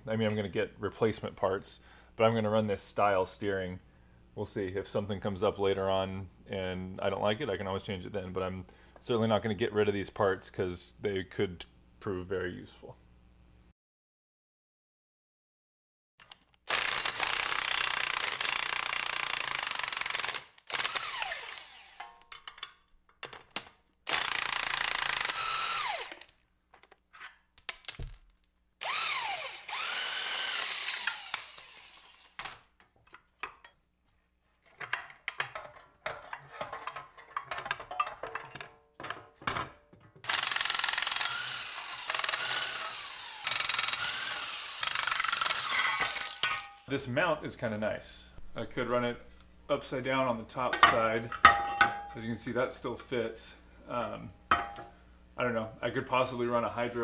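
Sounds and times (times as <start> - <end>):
metal parts clanking: 30.9 - 33.8, 34.7 - 39.8, 45.5 - 46.9
impact wrench hammering: 40.2 - 46.9.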